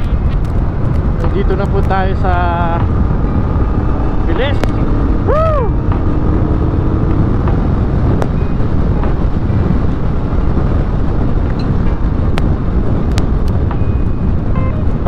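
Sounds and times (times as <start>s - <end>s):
motorcycle engine running: 0.0s - 15.0s
wind rush on microphone: 0.0s - 15.0s.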